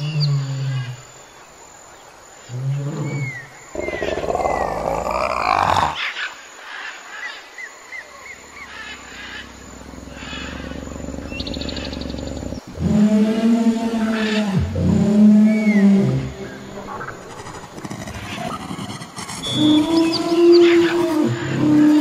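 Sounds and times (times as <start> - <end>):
big cat growling and roaring: 2.6 - 6.0.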